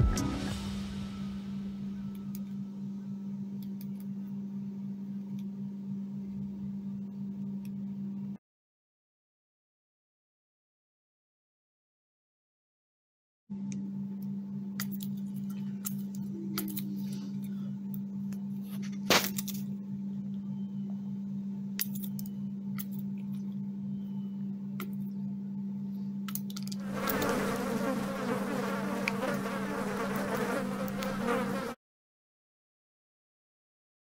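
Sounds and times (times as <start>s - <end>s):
steady low hum: 0.0s - 8.4s, 13.5s - 31.8s.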